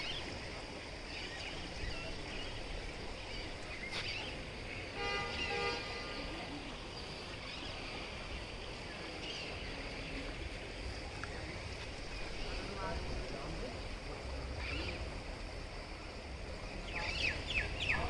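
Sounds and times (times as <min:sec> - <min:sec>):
outdoor background noise: 0:00.0 - 0:18.0
vehicle horn toot: 0:05.0 - 0:06.3.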